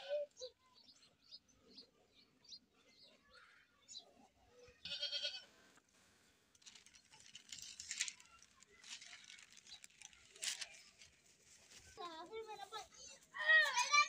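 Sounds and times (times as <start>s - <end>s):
faint scattered noises: 0.0s - 14.0s
baby goat bleating: 4.8s - 5.4s.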